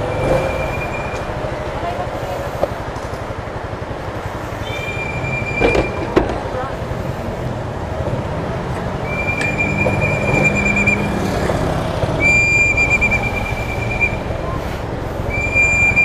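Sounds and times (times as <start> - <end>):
high steady tone: 0.0 - 2.4, 12.2 - 16.0
motorcycle engine rumbling: 0.0 - 16.0.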